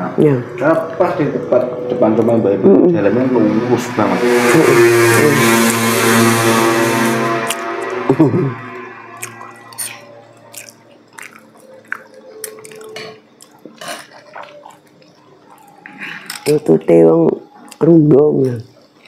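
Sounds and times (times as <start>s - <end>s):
vehicle engine passing: 0.0s - 11.6s
chewing: 9.2s - 16.6s
spoons scraping plates: 12.9s - 14.9s.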